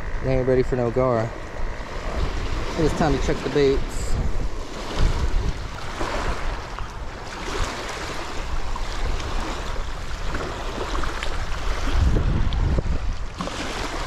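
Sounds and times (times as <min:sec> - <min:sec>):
lake water washing against bank: 0:00.0 - 0:14.0
wind buffeting microphone: 0:00.0 - 0:14.0.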